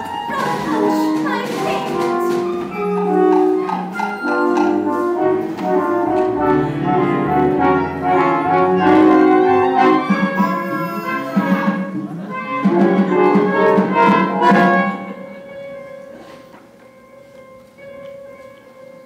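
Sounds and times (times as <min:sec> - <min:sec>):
orchestra playing sustained chords: 0:00.0 - 0:19.0.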